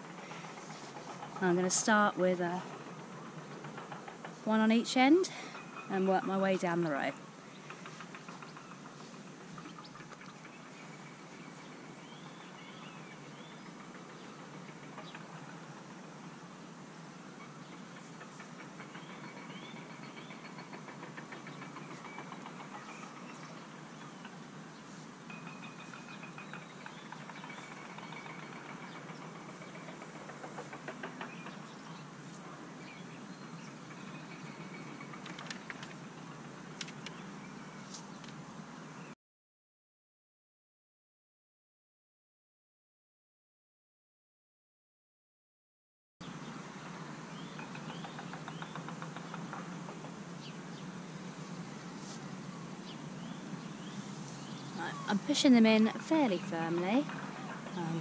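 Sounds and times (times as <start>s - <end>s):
outdoor background noise: 0.0s - 39.2s, 46.2s - 58.0s
bird chirping: 5.4s - 15.3s, 52.8s - 58.0s.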